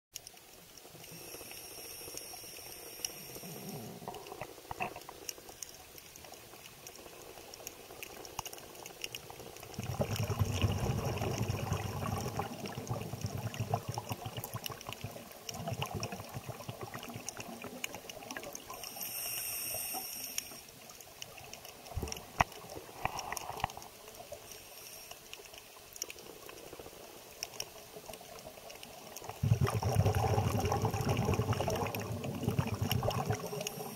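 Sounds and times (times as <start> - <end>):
faint scattered clicks and crackle: 0.1 - 33.9
bubbling from exhaled air: 9.7 - 18.8, 29.2 - 33.9.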